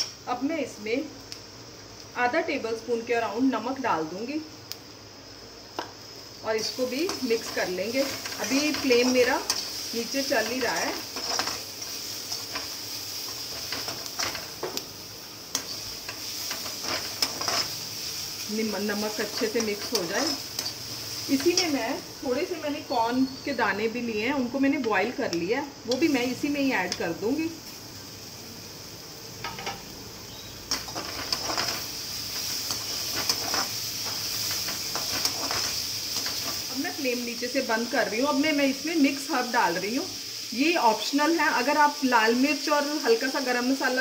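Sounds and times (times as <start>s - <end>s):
vegetables sizzling in oil: 0.0s - 44.0s
metal spatula scraping a pan: 15.5s - 17.8s.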